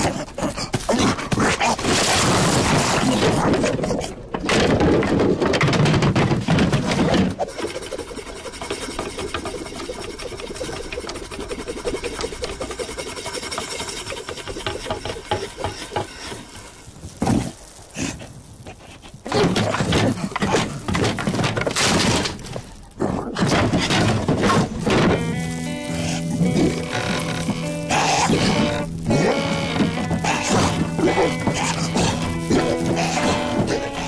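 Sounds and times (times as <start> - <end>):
breaking wood crashes: 0.7 - 7.9, 19.3 - 34.0
wooden crate rattling and clattering: 2.8 - 11.4, 19.3 - 34.0.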